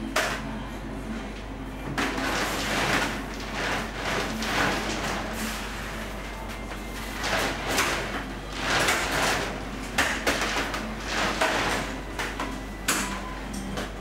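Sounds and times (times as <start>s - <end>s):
candy rope rubbing on steel bench: 2.1s - 9.8s.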